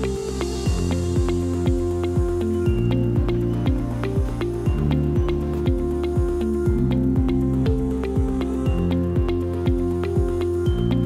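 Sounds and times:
held synth chords: 0:00.0 - 0:11.0
kick drum: 0:00.7 - 0:11.0.

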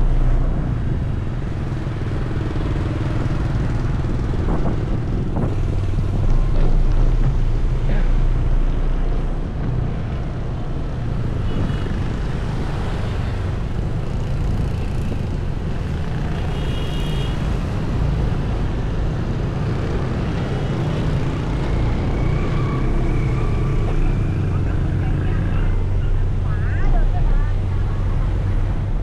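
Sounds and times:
street traffic: 0:00.0 - 0:29.0
vehicle engine rumble: 0:00.0 - 0:29.0
wind on microphone: 0:03.0 - 0:07.8.

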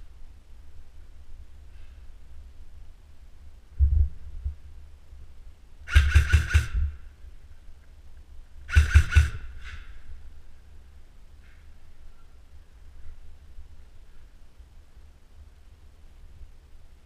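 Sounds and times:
airsoft rifle bursts: 0:05.9 - 0:07.0, 0:08.7 - 0:10.0.

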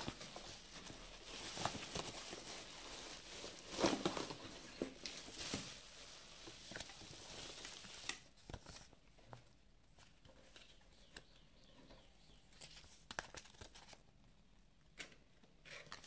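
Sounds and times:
bubble wrap crinkling: 0:00.0 - 0:08.9
paper card rustling: 0:12.5 - 0:14.0.

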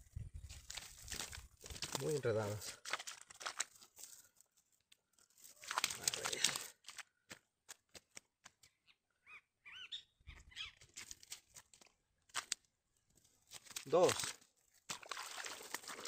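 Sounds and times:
net mesh rustling and crinkling: 0:00.4 - 0:07.0, 0:10.9 - 0:14.9.

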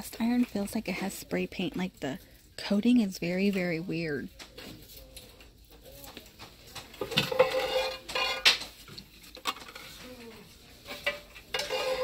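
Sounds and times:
metal cookware clanking: 0:07.0 - 0:10.0, 0:10.8 - 0:12.0.

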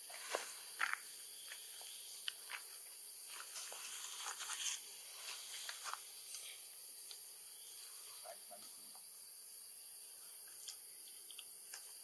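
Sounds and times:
rustling leaves and twigs: 0:00.0 - 0:08.8
high insect hiss: 0:00.0 - 0:12.0.

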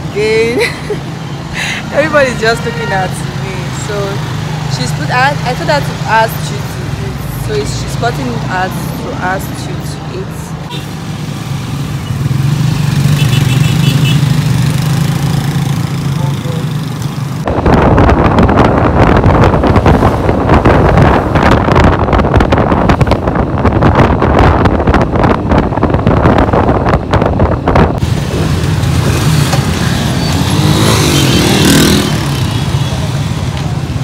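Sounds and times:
road traffic: 0:00.0 - 0:34.0
gusty wind noise on microphone: 0:17.2 - 0:34.0.

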